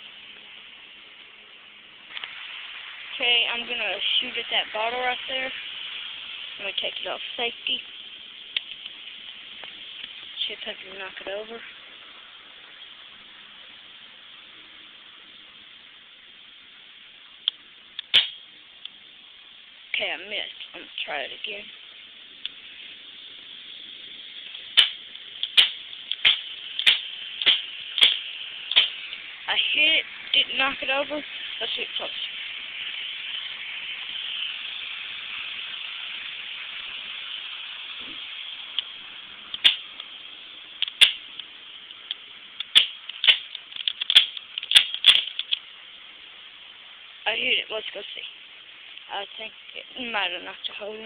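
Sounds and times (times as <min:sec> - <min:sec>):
air pistol firing: 0:18.0 - 0:18.4, 0:24.7 - 0:29.0, 0:39.6 - 0:39.9, 0:40.9 - 0:41.2, 0:42.6 - 0:45.4
faint clicks: 0:40.8 - 0:45.7.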